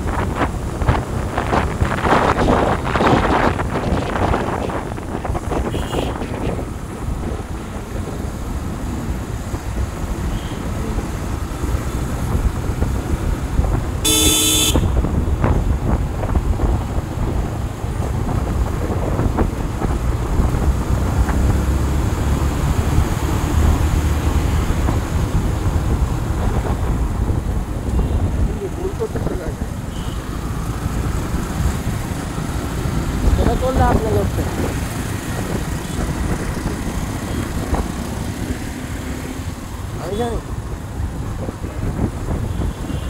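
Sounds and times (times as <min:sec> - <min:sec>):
road traffic rumble: 0:00.0 - 0:43.0
vehicle horn blast: 0:05.7 - 0:06.2, 0:14.0 - 0:15.0, 0:29.9 - 0:30.3, 0:42.5 - 0:43.0.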